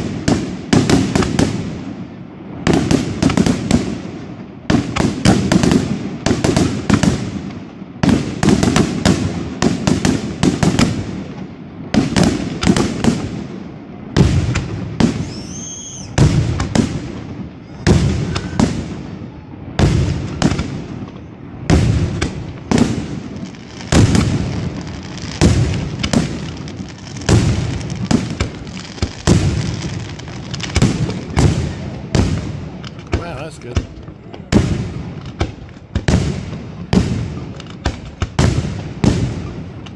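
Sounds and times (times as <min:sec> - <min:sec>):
firework shells bursting: 0:14.4 - 0:19.0
firework whistle: 0:15.0 - 0:16.8, 0:17.6 - 0:20.2.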